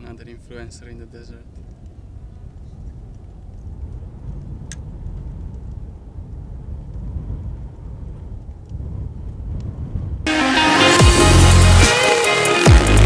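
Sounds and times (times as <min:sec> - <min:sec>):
wind buffeting microphone: 0:00.0 - 0:10.3.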